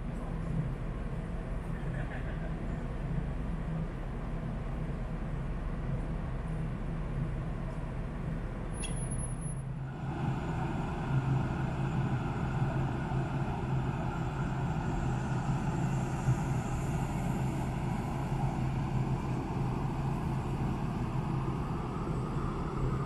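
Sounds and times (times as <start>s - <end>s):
ferry machinery drone: 8.2s - 23.0s
rushing noise: 9.7s - 23.0s.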